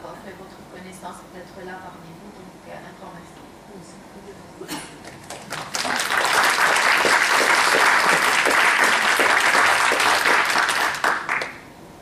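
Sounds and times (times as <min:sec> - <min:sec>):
audience applauding: 0:05.2 - 0:11.6.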